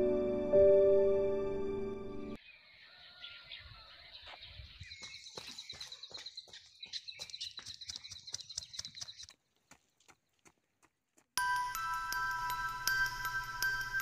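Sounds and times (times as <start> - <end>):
running footsteps: 4.2 - 11.4.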